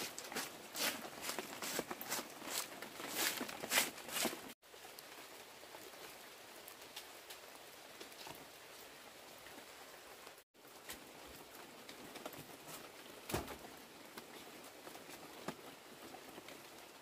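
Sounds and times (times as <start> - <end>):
sharp crunching rustles: 0.0 - 4.6.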